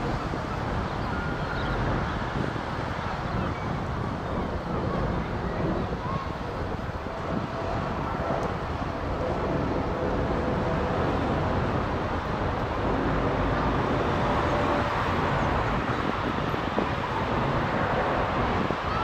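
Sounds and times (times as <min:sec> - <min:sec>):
engine whine: 0:00.0 - 0:19.0
jet engine roar overhead: 0:00.0 - 0:19.0.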